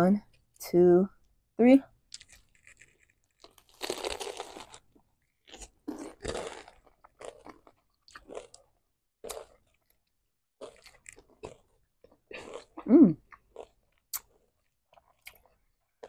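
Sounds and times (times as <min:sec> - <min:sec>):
people biting crunchy food: 0:02.1 - 0:09.9, 0:10.6 - 0:11.7, 0:12.3 - 0:15.6
chewing crunches: 0:02.1 - 0:16.0.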